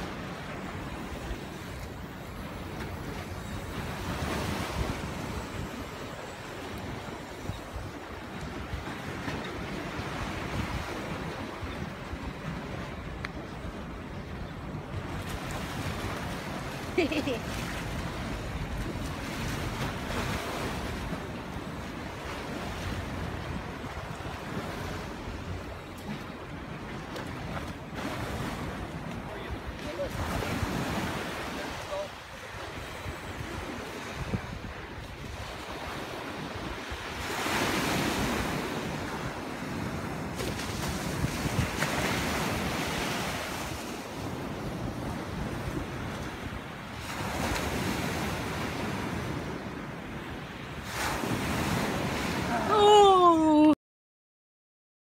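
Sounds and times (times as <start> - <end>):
wind buffeting microphone: 0.0 - 52.6
small waves washing up a beach: 0.0 - 53.8.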